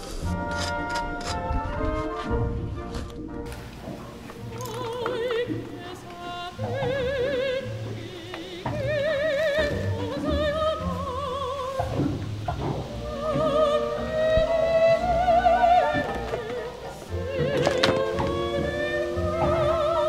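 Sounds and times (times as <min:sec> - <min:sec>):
low accompaniment: 0:00.0 - 0:20.0
operatic high voice singing: 0:04.4 - 0:20.0.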